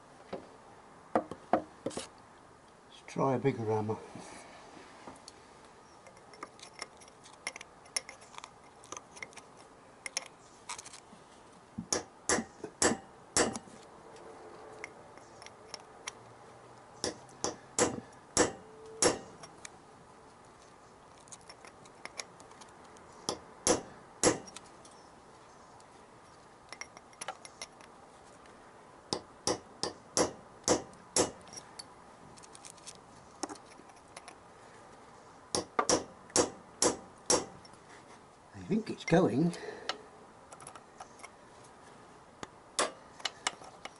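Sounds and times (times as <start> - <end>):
hammer striking a chisel: 11.9 - 13.6, 17.0 - 19.4, 23.3 - 24.5, 29.1 - 31.4, 35.6 - 37.6.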